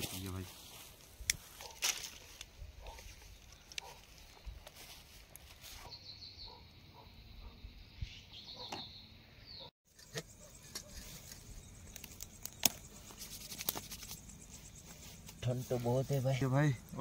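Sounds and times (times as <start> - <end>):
faint high chirping: 2.9 - 17.0
campfire crackling and popping: 11.8 - 13.9.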